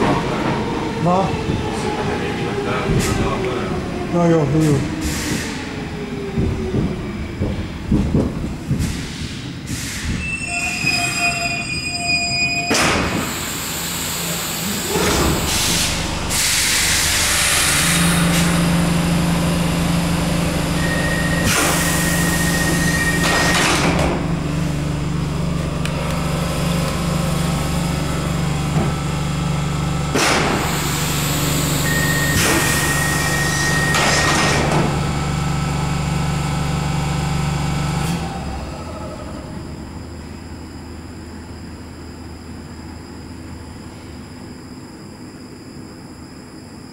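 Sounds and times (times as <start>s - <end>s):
train doors moving: 0.0s - 19.8s, 20.7s - 35.4s
steady low train hum: 0.0s - 46.9s
loud air hiss: 8.8s - 10.4s, 13.1s - 18.8s, 30.6s - 33.8s
train wheel squeal: 9.7s - 13.4s, 20.8s - 23.7s, 31.8s - 34.4s.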